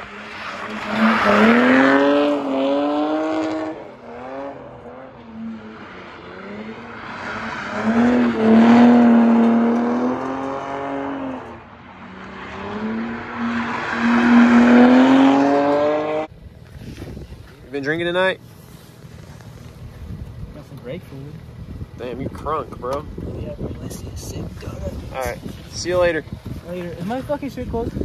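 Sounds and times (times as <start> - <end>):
car engine revving high: 0.0 - 16.3.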